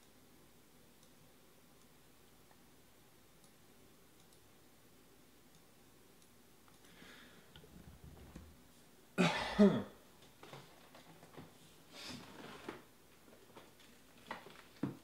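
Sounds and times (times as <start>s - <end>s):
person clearing throat: 9.2s - 10.0s.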